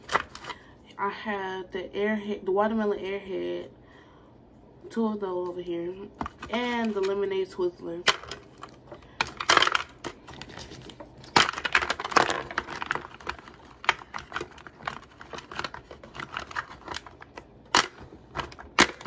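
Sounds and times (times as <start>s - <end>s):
rummaging: 0.0s - 0.6s, 6.1s - 19.0s
plastic tubes clicking and clattering: 8.0s - 19.0s.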